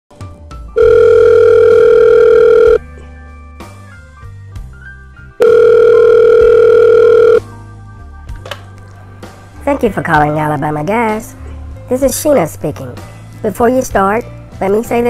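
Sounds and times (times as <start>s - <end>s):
telephone ringing tone: 0.8s - 2.8s, 5.4s - 7.4s.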